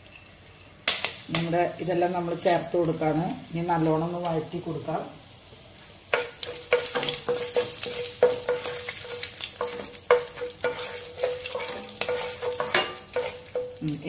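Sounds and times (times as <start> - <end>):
light sizzling: 0.0 - 14.0
wooden spatula scraping a pan: 6.1 - 13.7.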